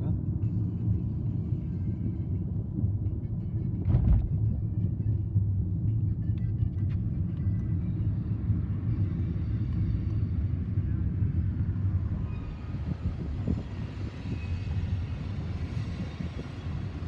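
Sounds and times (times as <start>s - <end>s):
tyres and engine rumble: 0.0s - 17.0s.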